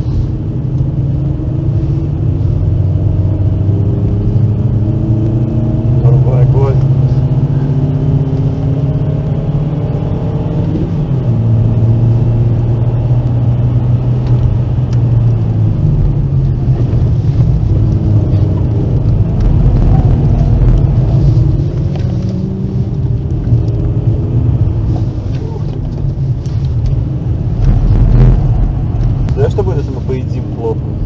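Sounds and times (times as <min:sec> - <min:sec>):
car engine running: 0:00.0 - 0:31.0
road and tyre noise: 0:00.0 - 0:31.0.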